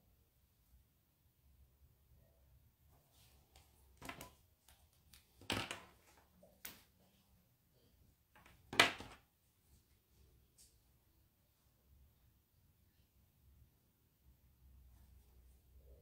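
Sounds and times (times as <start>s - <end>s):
paper rustling: 3.2s - 6.2s.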